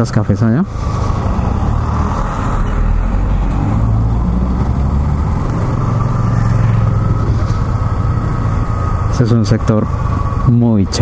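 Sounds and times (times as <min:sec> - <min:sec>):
motorcycle engine running: 0:03.2 - 0:11.0.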